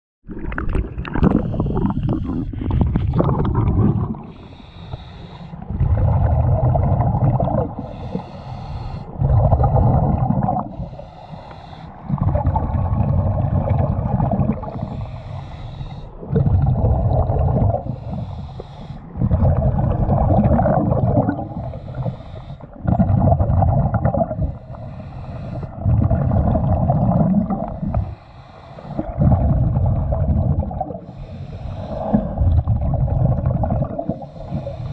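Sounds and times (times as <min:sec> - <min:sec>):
exhaled bubbles rumbling: 0:00.2 - 0:34.9
water splashing: 0:00.3 - 0:08.4
regulator inhale hissing: 0:04.2 - 0:05.7, 0:07.7 - 0:09.2, 0:10.6 - 0:12.1, 0:14.6 - 0:16.3, 0:17.8 - 0:19.2, 0:21.4 - 0:22.8, 0:24.4 - 0:25.9, 0:27.8 - 0:29.2, 0:31.0 - 0:32.4, 0:34.1 - 0:34.9.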